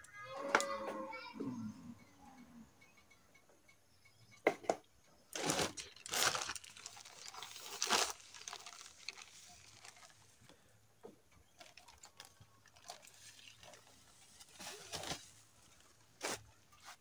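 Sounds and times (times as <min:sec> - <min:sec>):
plastic packet crinkling: 0:05.3 - 0:10.5, 0:11.5 - 0:15.8.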